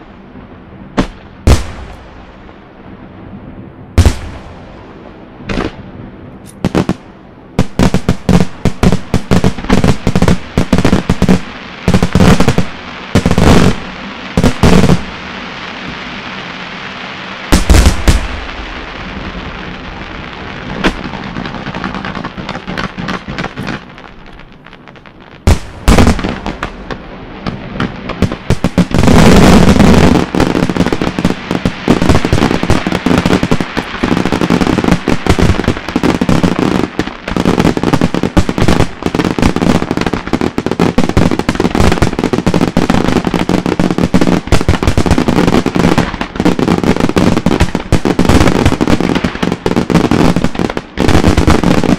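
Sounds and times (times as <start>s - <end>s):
fireworks crackle: 4.0s - 5.8s, 6.4s - 51.9s
firework shells bursting with bangs: 20.8s - 43.2s.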